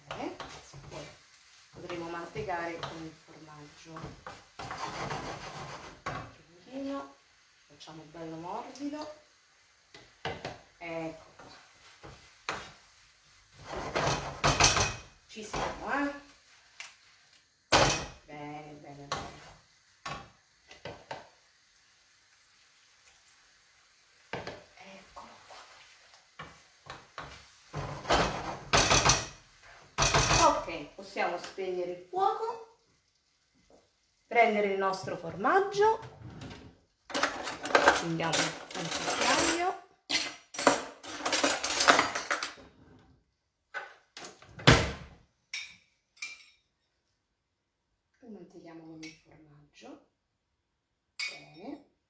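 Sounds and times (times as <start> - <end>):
spoon scraping and stirring: 4.0 - 6.3, 13.5 - 15.0, 37.1 - 42.7.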